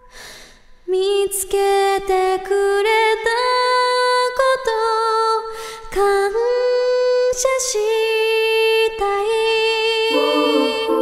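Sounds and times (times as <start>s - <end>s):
woman singing long notes: 9.9s - 11.0s.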